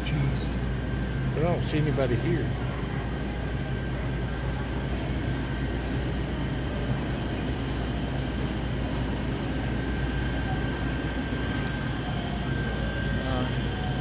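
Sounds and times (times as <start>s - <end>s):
refrigeration and ventilation hum: 0.0s - 14.0s
faint high whine: 6.4s - 14.0s.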